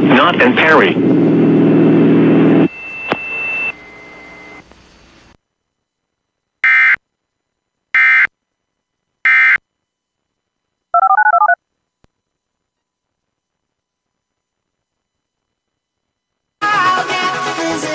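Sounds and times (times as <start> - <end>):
harsh buzzing data tones: 6.6 - 7.1, 7.9 - 8.4, 9.2 - 9.7, 10.9 - 11.6
touch-tone beeps: 11.0 - 11.6.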